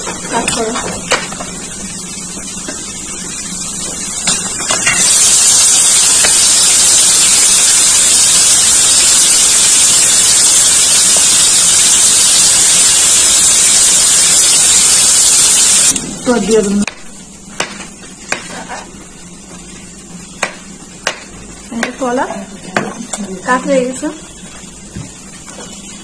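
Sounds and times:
loud steady hiss: 0.0s - 16.4s.

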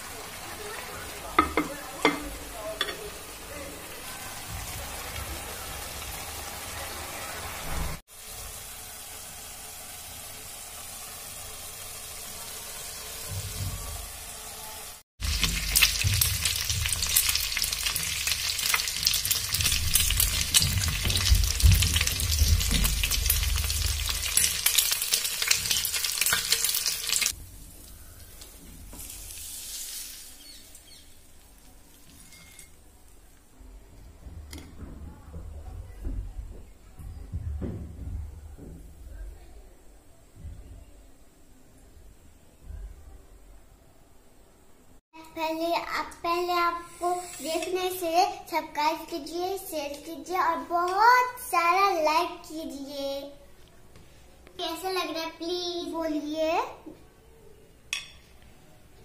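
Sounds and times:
vegetables sizzling in oil: 0.0s - 32.8s, 45.2s - 53.1s.

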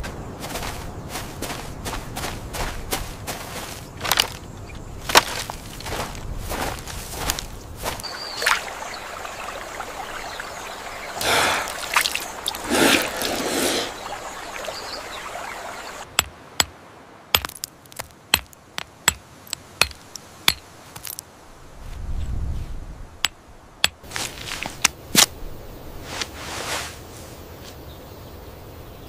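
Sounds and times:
water splashing and trickling: 0.4s - 21.2s
stone knocking on stone: 17.4s - 21.2s.

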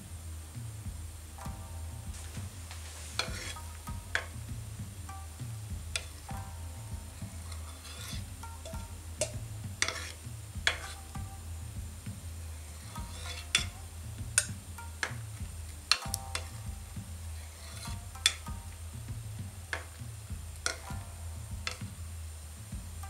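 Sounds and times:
metal ladle clinking: 7.4s - 11.1s, 12.8s - 13.7s, 20.6s - 21.0s.

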